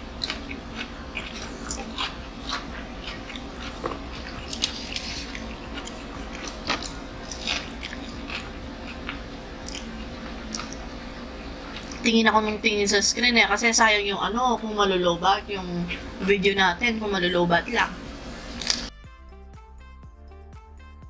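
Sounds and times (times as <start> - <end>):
crunching and chewing fried chicken: 0.0 - 10.9, 11.6 - 12.0, 18.6 - 18.9
low hum: 0.0 - 20.5.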